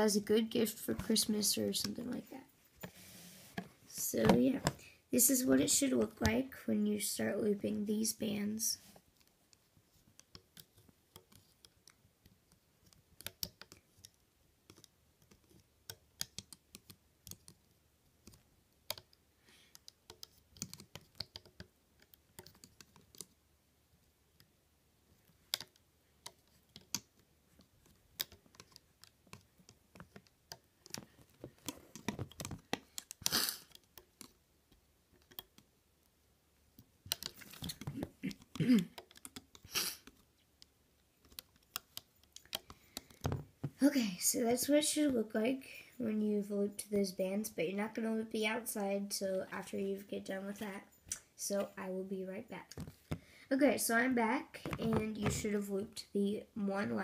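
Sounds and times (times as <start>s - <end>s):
clicks and taps on plastic loom: 10.2s - 17.6s, 18.2s - 23.3s, 25.4s - 35.7s.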